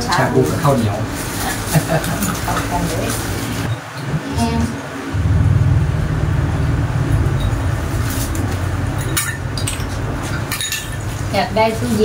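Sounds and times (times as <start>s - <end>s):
steady low rumble: 4.1s - 10.2s
glass and dishes clinking: 8.9s - 11.1s.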